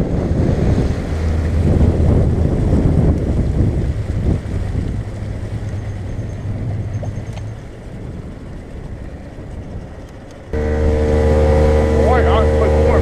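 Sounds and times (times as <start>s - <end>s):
boat engine humming: 0.0s - 13.0s
water wash: 0.0s - 13.0s
wind: 0.0s - 13.0s.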